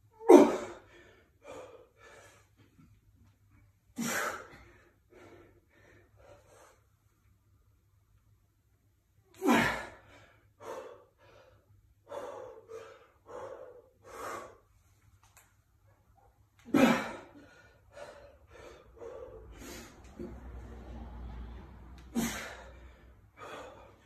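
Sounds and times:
person breathing hard and gasping: 0:09.4 - 0:14.7, 0:16.8 - 0:20.4, 0:22.0 - 0:24.0.

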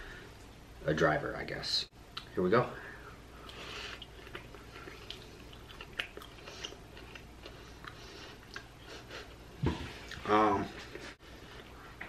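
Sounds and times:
wet chewing: 0:03.4 - 0:09.4.

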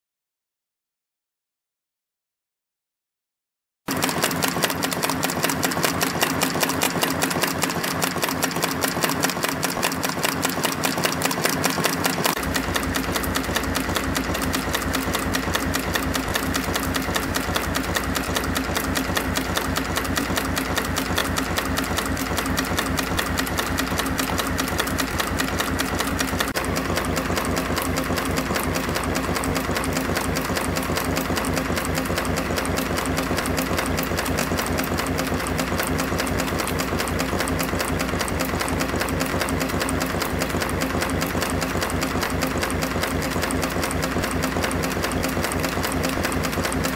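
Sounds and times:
wire forming machine clatter: 0:03.9 - 0:46.9.

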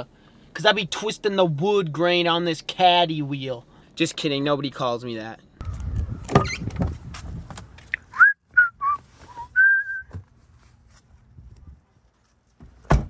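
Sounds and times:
person whistling: 0:08.1 - 0:10.2.

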